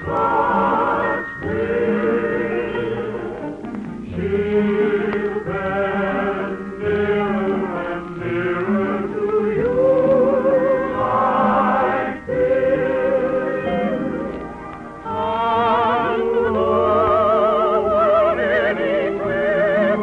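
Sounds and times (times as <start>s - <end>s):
operetta singing: 0.0s - 20.0s
orchestra: 0.0s - 20.0s.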